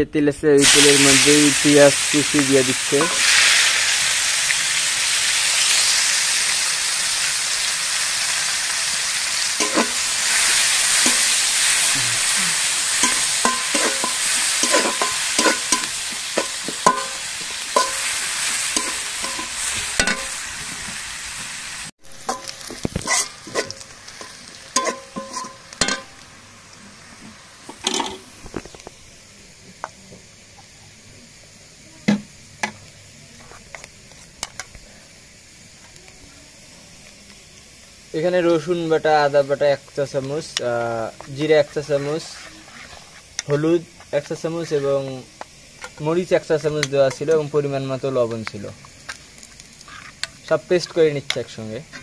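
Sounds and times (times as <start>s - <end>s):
onions sizzling in hot oil: 0.6s - 52.0s
metal spatula scraping a pan: 9.6s - 11.8s, 13.0s - 20.4s, 22.2s - 26.2s, 41.5s - 43.6s, 49.8s - 50.4s.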